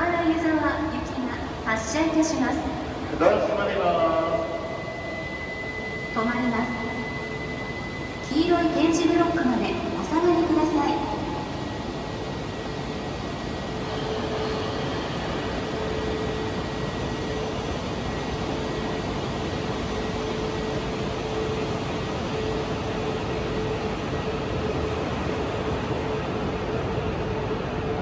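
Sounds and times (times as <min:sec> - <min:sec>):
train rumbling hum: 0:00.0 - 0:28.0
steady mid-pitched tone: 0:03.2 - 0:18.6.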